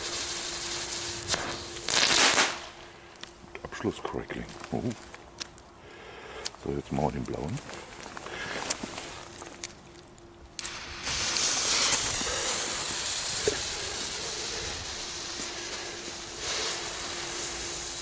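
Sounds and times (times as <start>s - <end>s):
firework spinner hissing: 0.0s - 3.2s, 10.6s - 18.0s.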